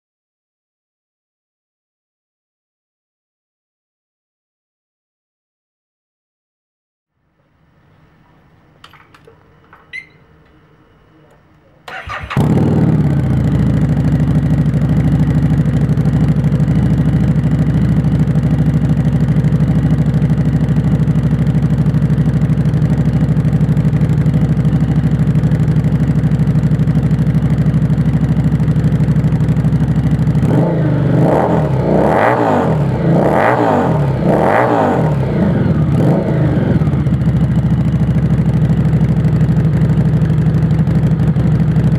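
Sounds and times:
motorcycle engine idling: 0:11.9 - 0:41.9
motorcycle engine revving: 0:11.9 - 0:41.9.

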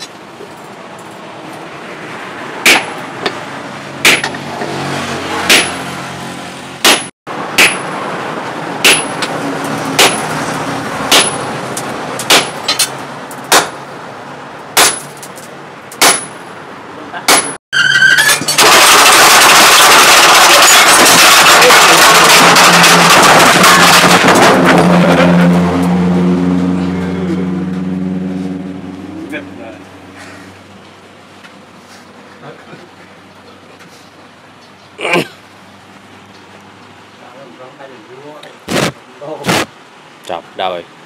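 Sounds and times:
hammer clanging on anvil: 0:04.1 - 0:04.4, 0:05.5 - 0:05.8, 0:06.9 - 0:07.9, 0:08.8 - 0:09.3, 0:11.1 - 0:11.5, 0:16.0 - 0:16.4, 0:17.3 - 0:17.6
loud rushing noise: 0:18.8 - 0:29.1, 0:38.6 - 0:39.8.

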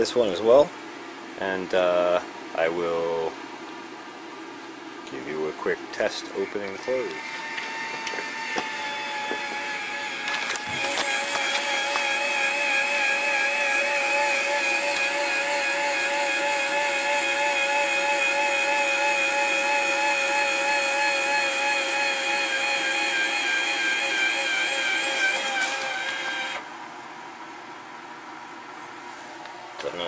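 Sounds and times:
actuator motor whining: 0:06.5 - 0:26.8.

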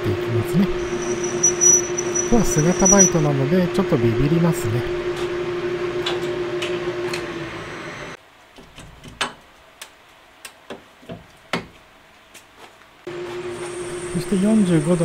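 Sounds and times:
lathe humming: 0:00.4 - 0:08.2
cutting tool chattering: 0:00.8 - 0:03.2.

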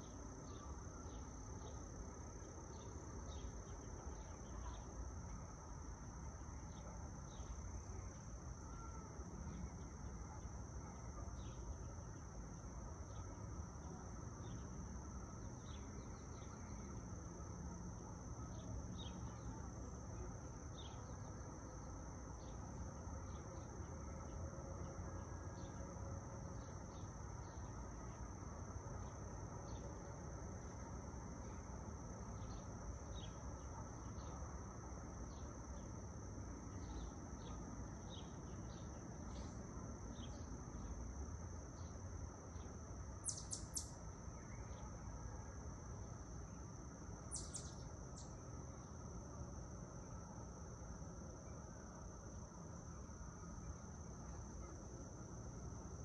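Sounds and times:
insects droning: 0:00.0 - 0:56.0
bird chirps: 0:43.2 - 0:44.8, 0:47.3 - 0:48.3.

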